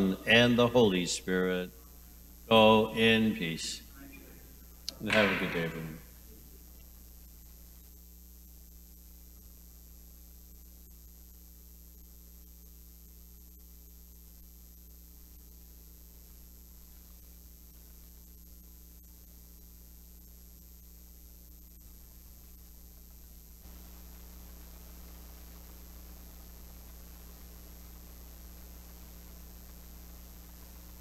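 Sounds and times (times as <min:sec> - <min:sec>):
electrical mains hum: 0:00.0 - 0:31.0
faint high whine and hiss: 0:00.0 - 0:31.0.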